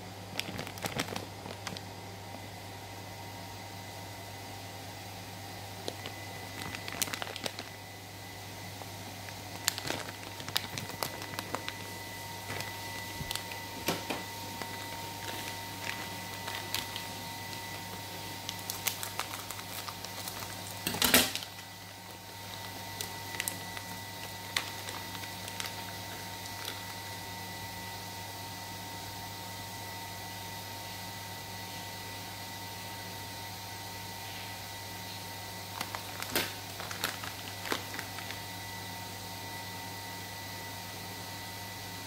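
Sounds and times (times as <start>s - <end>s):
electrical hum: 0.0s - 42.0s
plastic packaging crinkling: 0.2s - 2.0s, 5.7s - 27.3s, 35.6s - 38.9s.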